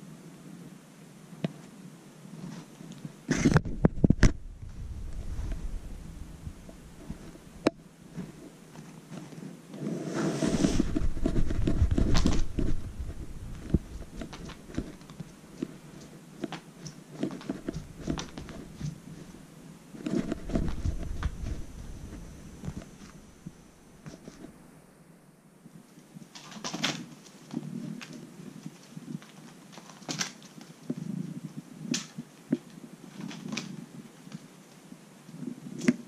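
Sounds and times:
kitten scuffing and rustling toy: 8.1 - 19.4, 20.0 - 24.6.

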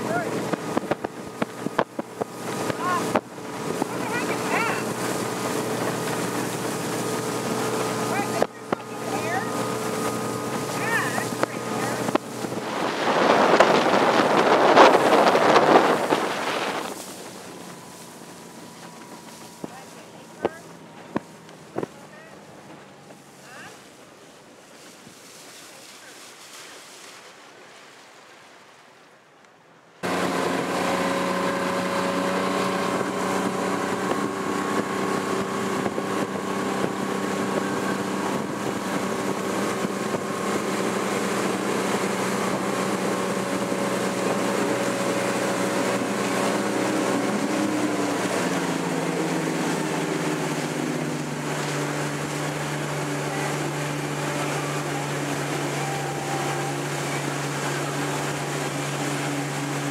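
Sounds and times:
wind on microphone: 0.0 - 17.9, 30.0 - 59.9
motorboat engine running: 0.0 - 27.2, 30.0 - 59.9
wake rushing: 0.0 - 29.2, 30.0 - 59.9.

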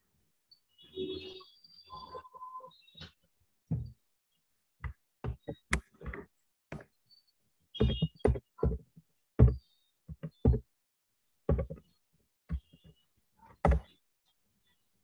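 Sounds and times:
irregular knocks and thumps: 3.7 - 4.0, 4.8 - 7.0, 7.8 - 10.8, 11.4 - 13.9.

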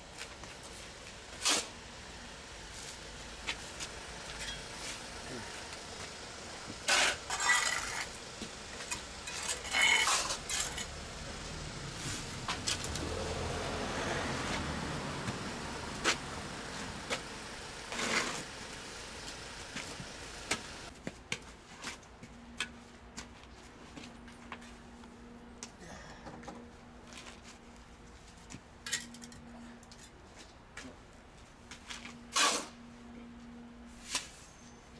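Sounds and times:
shovel scraping mortar on concrete: 1.3 - 1.8, 6.8 - 8.2, 8.8 - 10.9, 17.9 - 18.5, 31.9 - 32.8.

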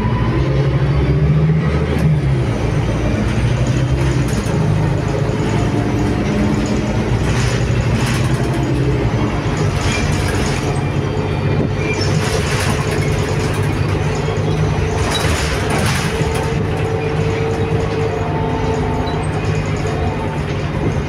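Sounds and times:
bus engine drone: 0.0 - 21.0
road noise: 0.0 - 21.0.

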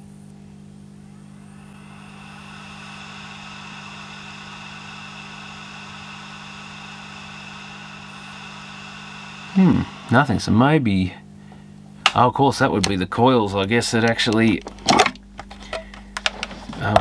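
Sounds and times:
low steady hum: 0.0 - 17.0
hard drive spindle motor whine: 1.1 - 10.7.

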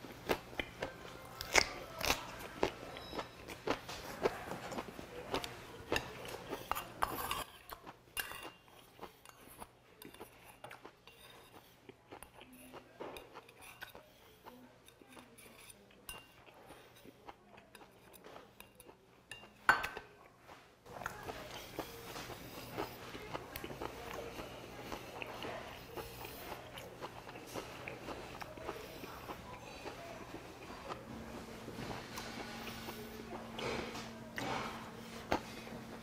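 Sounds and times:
chewing and biting: 0.0 - 19.0, 20.9 - 36.0
utensils clinking on metal bowl: 6.0 - 11.7, 14.8 - 17.1.

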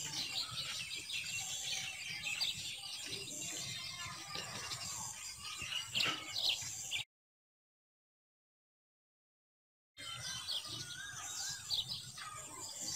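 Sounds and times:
small birds chirping: 0.0 - 7.1, 10.0 - 12.9.

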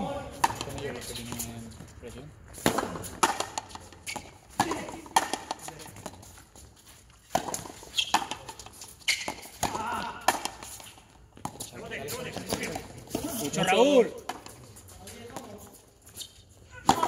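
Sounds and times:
ball cracking off racket and wall: 2.6 - 5.7, 9.2 - 10.7.

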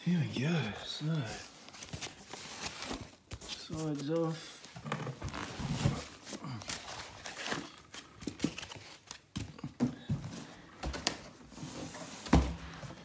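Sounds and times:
foam packaging rustling: 0.3 - 9.4.

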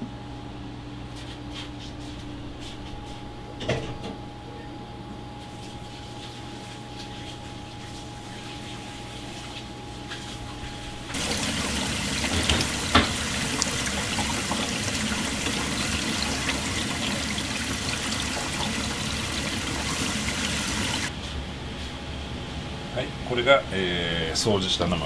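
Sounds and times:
tap water splashing into bowl: 11.2 - 21.1.

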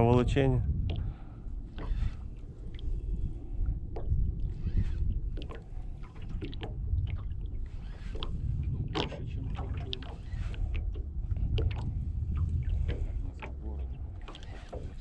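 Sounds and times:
wind rumbling on microphone: 0.0 - 15.0
waves lapping on boat hull: 0.8 - 15.0.

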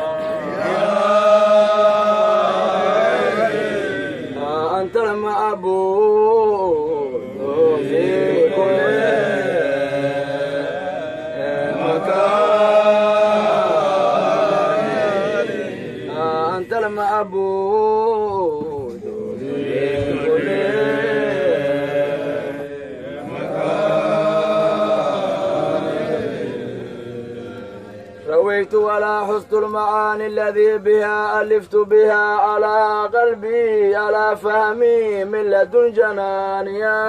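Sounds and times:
voices chanting: 0.0 - 17.4, 18.2 - 29.6.

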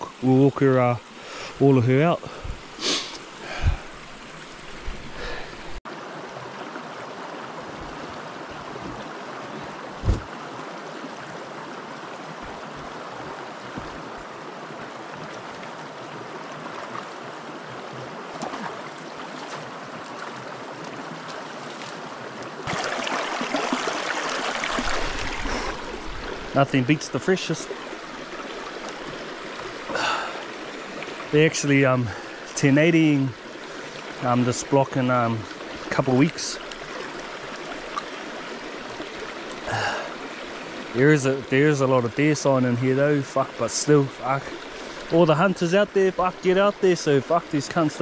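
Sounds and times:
creek running over stones: 0.0 - 48.0
thump: 10.0 - 10.3.

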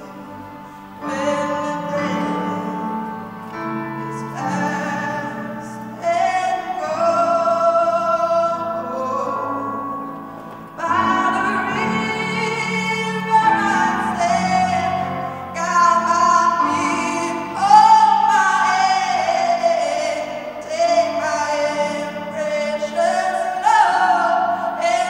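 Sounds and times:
woman singing long notes: 0.0 - 3.3.

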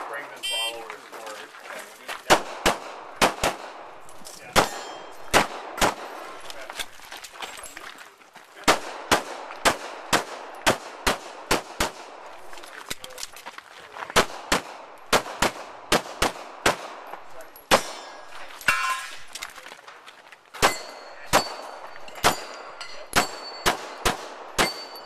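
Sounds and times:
pistol shots: 2.3 - 6.5, 8.6 - 12.5, 14.1 - 18.8, 20.6 - 25.0.

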